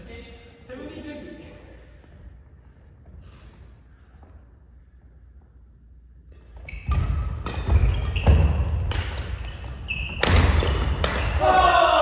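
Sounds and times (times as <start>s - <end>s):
racket hitting shuttlecock: 6.3s - 11.4s
sneakers squeaking on wooden court: 6.3s - 11.4s.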